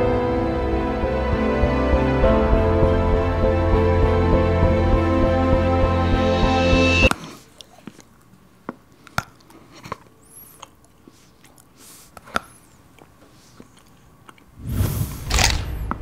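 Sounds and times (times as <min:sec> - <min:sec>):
person chewing chocolate: 0:07.3 - 0:14.6.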